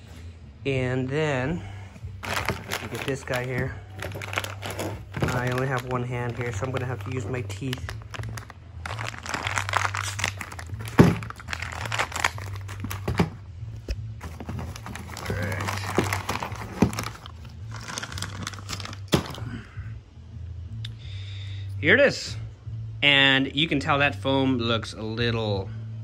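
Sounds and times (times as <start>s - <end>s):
low steady hum: 0.0s - 26.0s
plastic bag crinkling: 2.2s - 13.4s, 14.2s - 19.4s.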